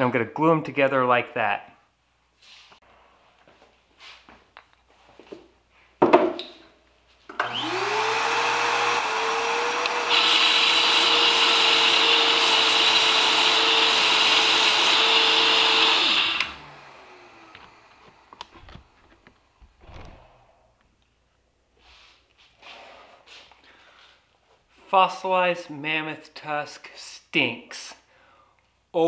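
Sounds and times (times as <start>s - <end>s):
belt grinder motor whine: 7.3s - 19.4s.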